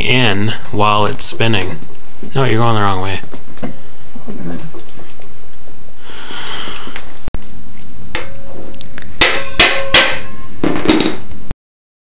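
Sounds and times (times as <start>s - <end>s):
hammer clanking on metal: 9.2s - 11.2s.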